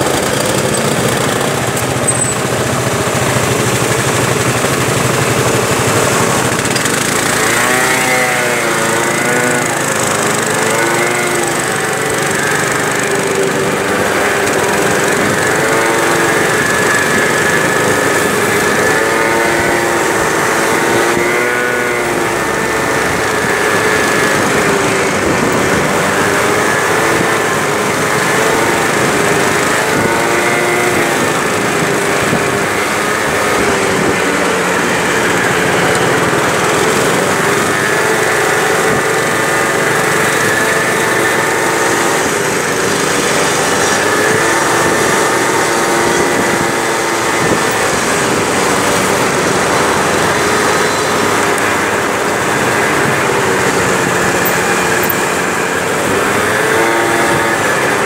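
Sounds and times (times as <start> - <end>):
road and wind noise: 0.0 - 58.0
scooter engine revving: 0.0 - 58.0.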